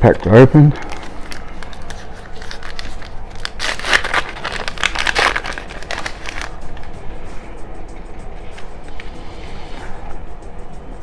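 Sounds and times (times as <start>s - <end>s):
card pack wrapper crinkling: 0.8s - 6.9s.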